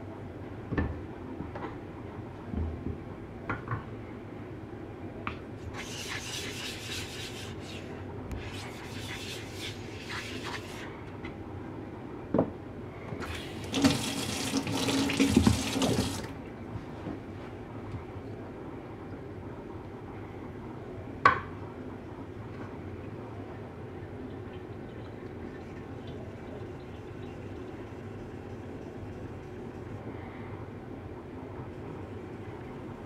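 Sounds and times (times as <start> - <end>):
water splashing into steel sink: 13.2 - 16.4.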